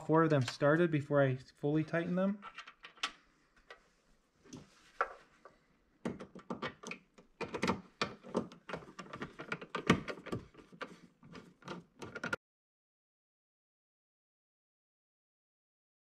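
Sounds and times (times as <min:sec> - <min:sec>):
screwdriver clicking and scraping: 0:06.1 - 0:12.4.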